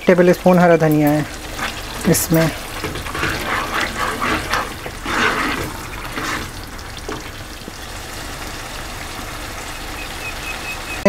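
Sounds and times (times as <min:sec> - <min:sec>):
gravy sizzling in a pan: 0:00.0 - 0:11.0
spoon scraping a pan: 0:00.9 - 0:07.4.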